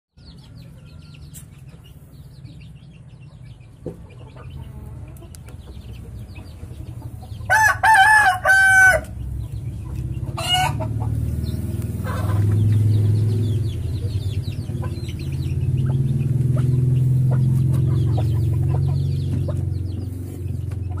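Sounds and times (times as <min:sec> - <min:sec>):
rooster crowing: 0:07.5 - 0:09.1, 0:10.4 - 0:10.8.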